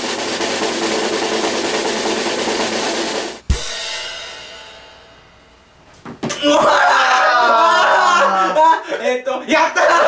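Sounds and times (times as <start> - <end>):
snare drum roll: 0.0 - 4.7
crash cymbal and bass drum hit: 0.0 - 5.7.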